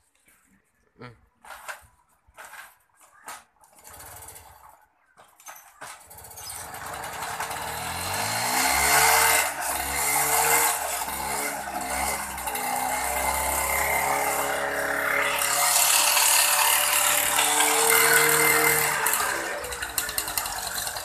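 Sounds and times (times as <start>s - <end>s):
moped engine starting and revving: 3.6s - 4.9s, 6.0s - 21.0s.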